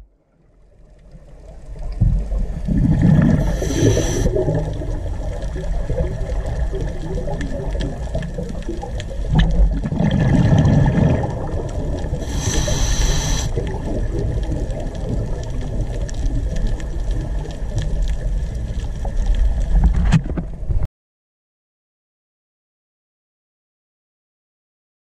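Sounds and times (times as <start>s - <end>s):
underwater rumble and water noise: 0.0s - 20.9s
hiss with high tones: 3.4s - 4.4s, 12.2s - 13.6s.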